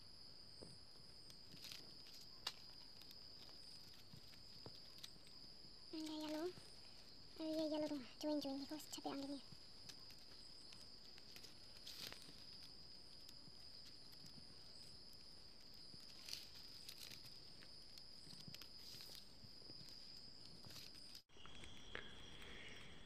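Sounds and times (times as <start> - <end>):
plastic strips rustling and clicking: 6.0 - 14.3
faint high-pitched tone: 21.3 - 23.0.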